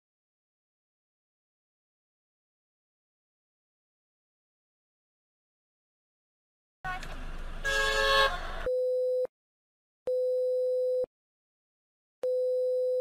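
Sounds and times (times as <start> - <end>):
road noise: 6.8 - 8.7.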